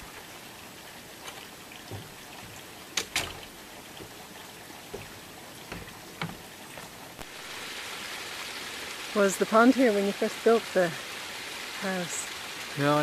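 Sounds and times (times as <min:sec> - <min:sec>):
footsteps on wooden boards: 0:01.2 - 0:07.3
wooden door shutting: 0:01.9 - 0:03.6
sharp knocks: 0:01.9 - 0:04.2, 0:04.9 - 0:06.9.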